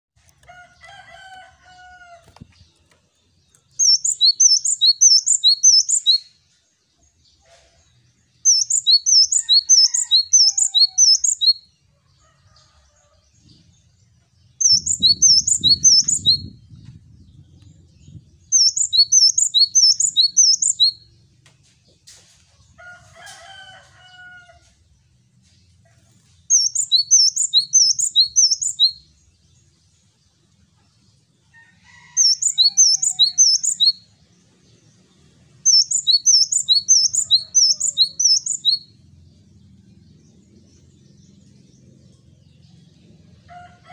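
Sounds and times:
other birds calling: 8.5 - 11.6.

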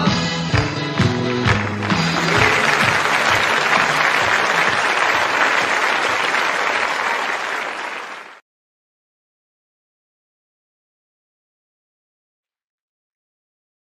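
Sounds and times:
audience applause: 1.0 - 8.4.

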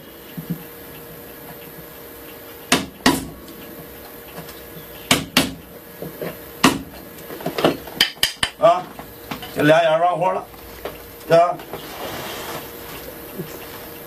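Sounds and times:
hand tools knocking on wood: 5.1 - 8.6.

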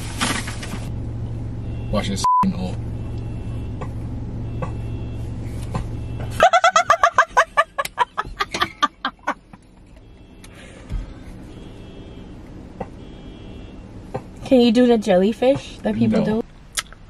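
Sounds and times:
low hum inside a car: 0.0 - 17.0
woman laughing hard: 6.4 - 10.0.

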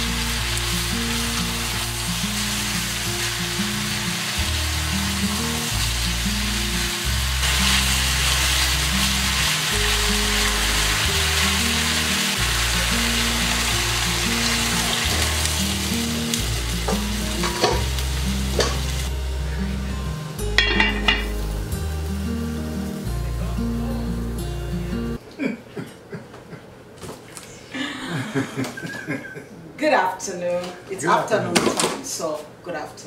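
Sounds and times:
meat sizzling in a pot: 0.0 - 23.8
utensils clinking on cookware: 16.9 - 17.9, 18.5 - 19.0, 20.6 - 21.4.

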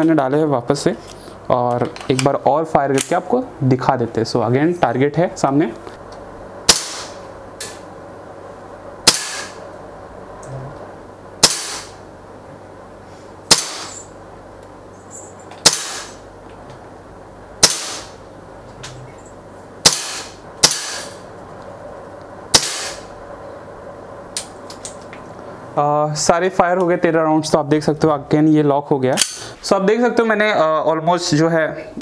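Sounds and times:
bb pistol shots: 6.7 - 7.2, 9.0 - 9.6, 11.4 - 12.0, 13.5 - 14.0, 15.6 - 16.2, 17.6 - 18.2, 19.8 - 21.2, 22.5 - 23.0.

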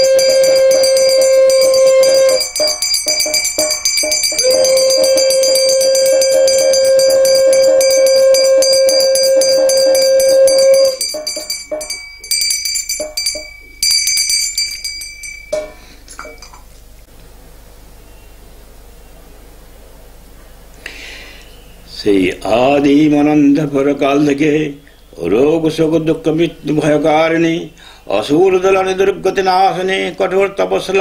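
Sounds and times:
conch shell blast: 0.0 - 16.4
hand bell ringing: 0.0 - 16.7.

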